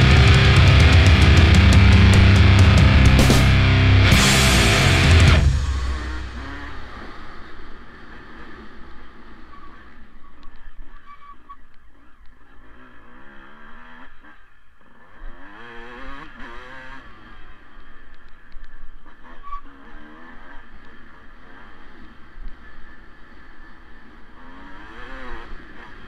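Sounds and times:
dirt bike engine revving: 0.0s - 9.6s, 24.1s - 26.0s.

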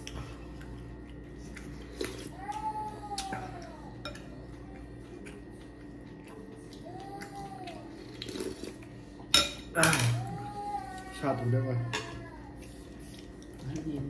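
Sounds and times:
cutlery clinking against dishes: 9.3s - 10.3s.

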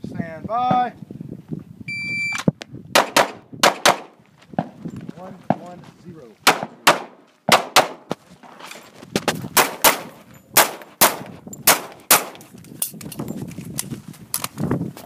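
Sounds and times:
pistol shots with echo: 3.0s - 4.1s, 6.4s - 8.1s, 9.6s - 12.4s.

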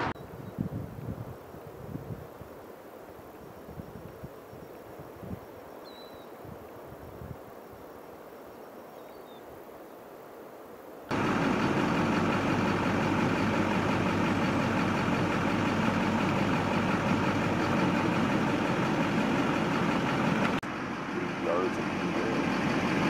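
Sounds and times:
faint outdoor ambience: 0.0s - 23.0s
vehicle engine idling: 11.1s - 23.0s.

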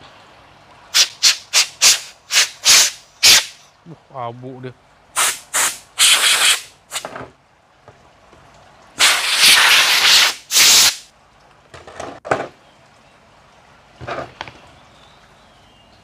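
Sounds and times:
compressed air blow gun hissing: 0.9s - 3.6s, 5.2s - 7.2s, 9.0s - 11.1s.

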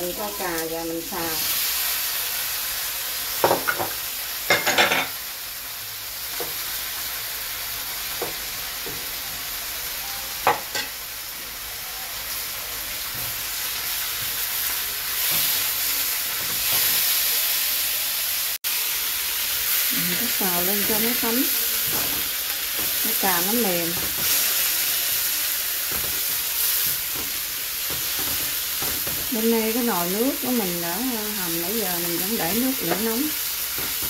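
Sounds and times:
food sizzling in a wok: 0.0s - 34.0s
spatula knocking and scraping pan: 16.3s - 17.0s, 20.8s - 24.8s, 25.8s - 30.8s, 32.3s - 34.0s.

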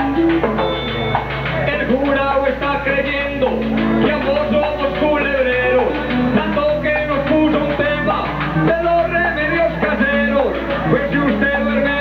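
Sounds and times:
strummed guitar: 0.0s - 12.0s
man singing into a microphone: 1.6s - 12.0s.

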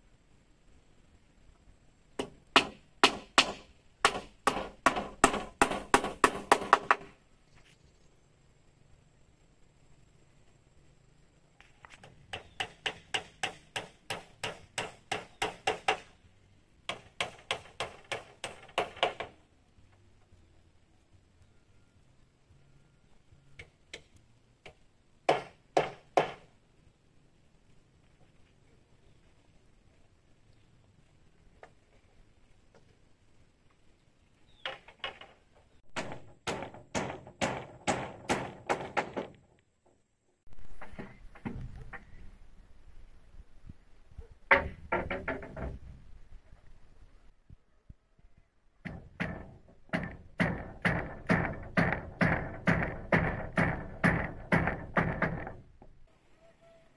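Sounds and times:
hand tool striking wood: 2.2s - 7.1s, 12.3s - 16.1s, 16.9s - 19.3s, 36.0s - 39.5s, 48.8s - 55.6s.

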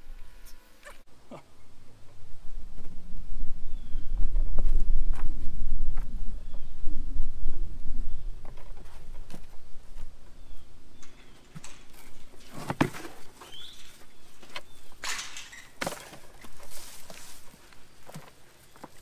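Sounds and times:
plastic buckets scraping and knocking: 11.0s - 19.0s
hands rustling in potting soil: 15.6s - 19.0s.

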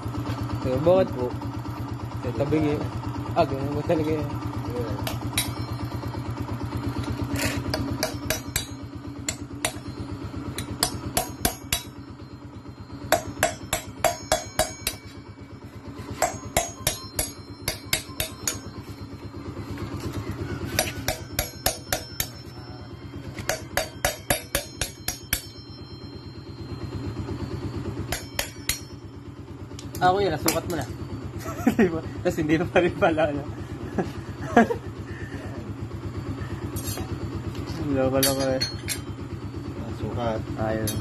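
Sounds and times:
steady low hum: 0.0s - 41.0s
hammer striking metal: 5.0s - 6.0s, 7.4s - 12.2s, 13.0s - 19.0s, 20.7s - 26.3s, 28.0s - 29.1s, 29.9s - 30.8s, 38.2s - 39.1s, 40.8s - 41.0s.

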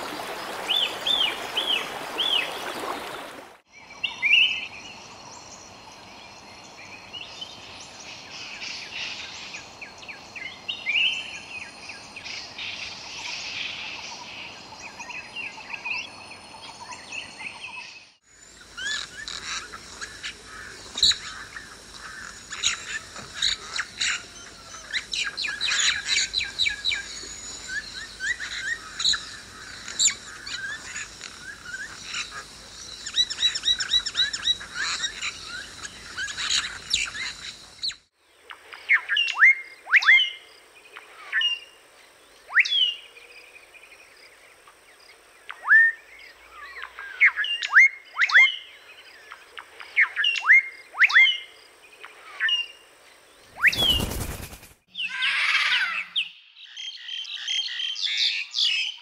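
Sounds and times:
birds chirping in chorus: 0.0s - 38.1s, 52.2s - 59.0s
sharp downward bird chirps: 53.5s - 56.4s.

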